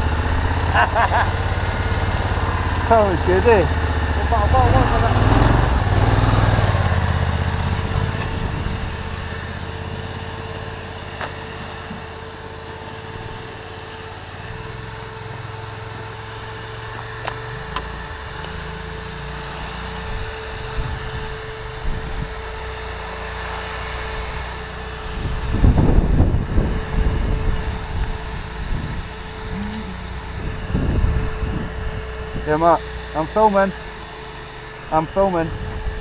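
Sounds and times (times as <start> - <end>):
motorcycle engine idling: 0.0 - 20.2.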